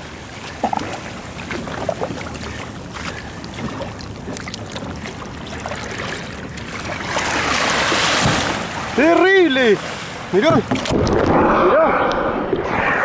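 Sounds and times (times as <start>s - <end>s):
water sloshing around kayak: 0.0s - 11.3s
wind on microphone: 10.6s - 13.0s
whale surfacing: 10.8s - 13.0s.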